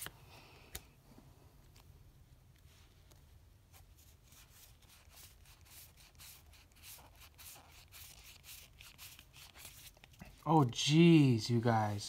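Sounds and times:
trading cards swishing: 0:03.8 - 0:10.5.

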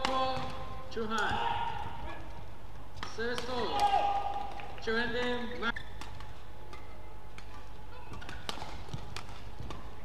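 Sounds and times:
player shouting: 0:01.2 - 0:02.3, 0:03.5 - 0:04.5.

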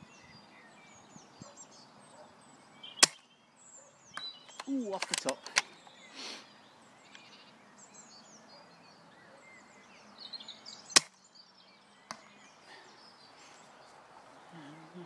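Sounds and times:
small birds chirping: 0:00.0 - 0:15.0
airsoft rifle shot snap: 0:03.0 - 0:03.2, 0:10.9 - 0:11.2.

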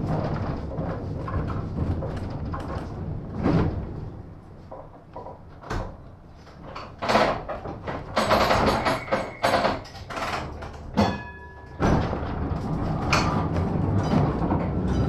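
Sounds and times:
tram rumble: 0:00.0 - 0:07.1, 0:10.4 - 0:15.0
sharp knocks and clatters: 0:00.0 - 0:15.0.

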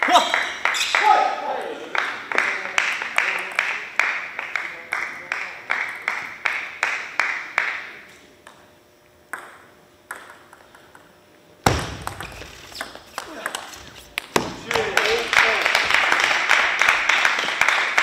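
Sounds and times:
table tennis ball bouncing: 0:09.3 - 0:11.0, 0:11.6 - 0:15.0.

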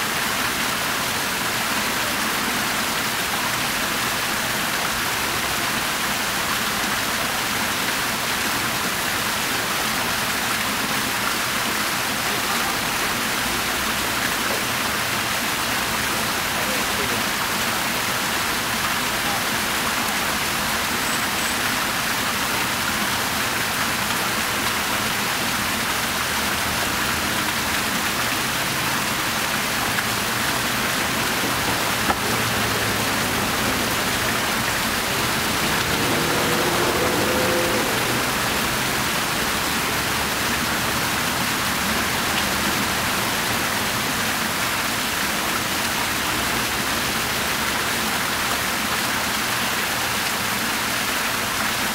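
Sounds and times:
fountain water splashing: 0:00.0 - 0:51.9.

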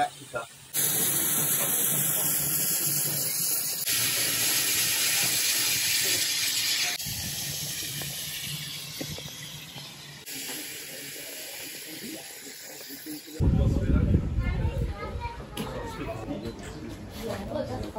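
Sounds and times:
steam hissing from locomotive: 0:00.0 - 0:13.4.

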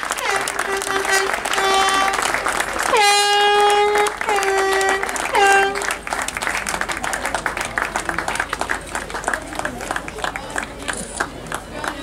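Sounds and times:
horn blasts: 0:00.0 - 0:06.2
crowd applauding: 0:00.0 - 0:12.0.

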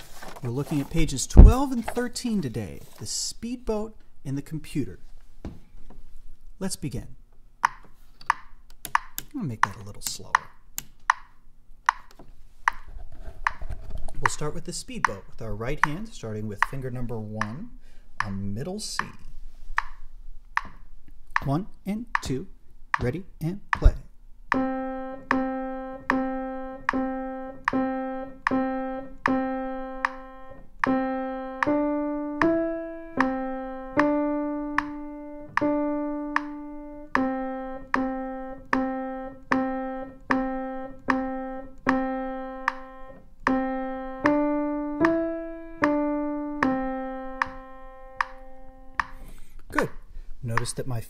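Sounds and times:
slow single-note piano melody: 0:24.5 - 0:49.2.

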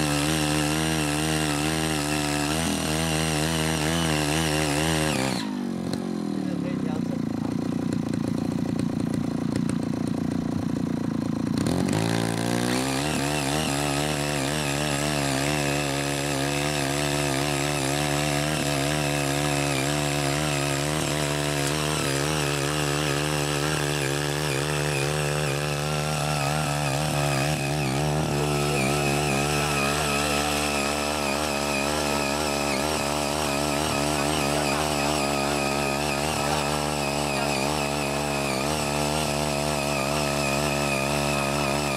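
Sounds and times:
rotary tines tilling soil: 0:00.0 - 0:41.9
small cultivator engine running: 0:00.0 - 0:41.9.

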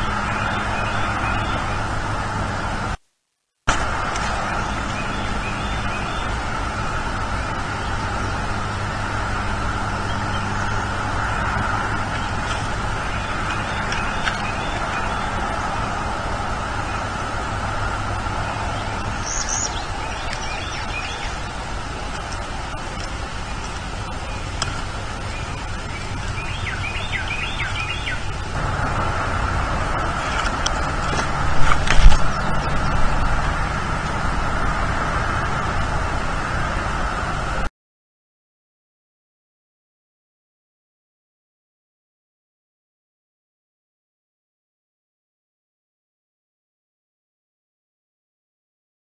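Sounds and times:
bird chirping: 0:00.0 - 0:01.9, 0:04.2 - 0:09.0, 0:10.0 - 0:15.8, 0:18.3 - 0:28.6, 0:30.0 - 0:33.3
outdoor background hiss: 0:00.0 - 0:37.7
low electrical hum: 0:03.7 - 0:37.6
wind on microphone: 0:27.6 - 0:37.7.

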